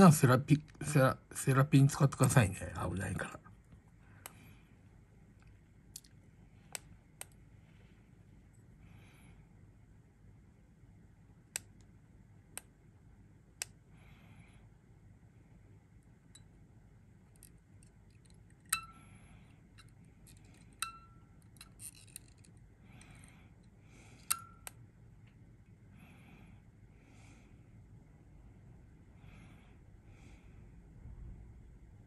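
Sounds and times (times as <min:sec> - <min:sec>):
soft breaths: 0:03.8 - 0:10.0, 0:13.7 - 0:15.9, 0:18.8 - 0:21.3, 0:22.0 - 0:31.4
metal tweezers clicking on wire coils: 0:24.2 - 0:24.8.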